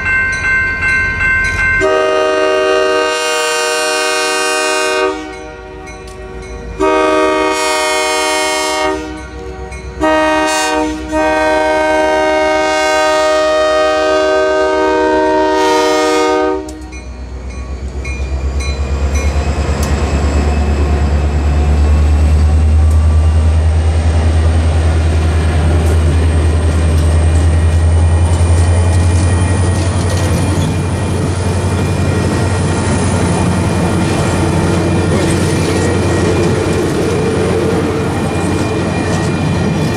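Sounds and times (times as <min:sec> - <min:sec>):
locomotive air horn blasts: 0:01.8 - 0:16.9
train wheels clattering: 0:25.3 - 0:39.9.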